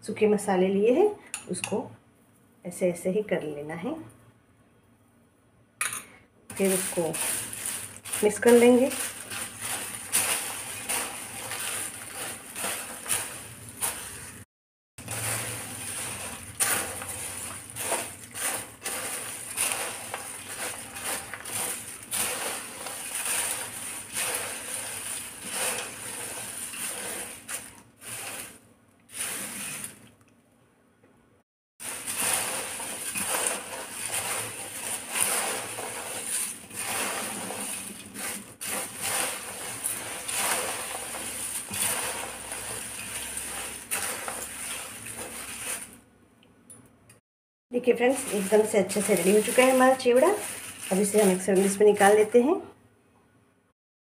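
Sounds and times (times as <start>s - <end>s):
clinks against steel bowl: 5.8s - 6.1s
dry snack rustling in steel bowl: 6.5s - 30.1s, 31.8s - 46.0s, 47.8s - 52.5s.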